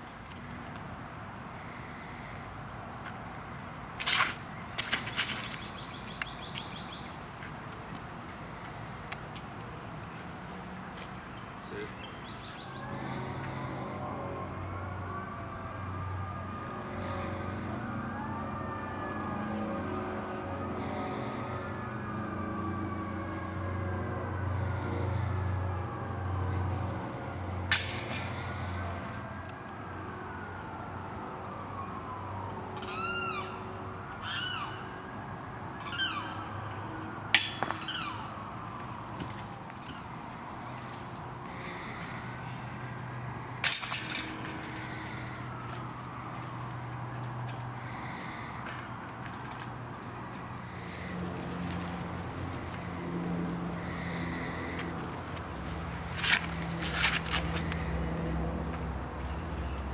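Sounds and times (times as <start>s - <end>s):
outdoor background noise: 0.0s - 59.9s
disc striking metal chains: 27.7s - 29.2s, 37.4s - 38.0s, 43.6s - 45.1s.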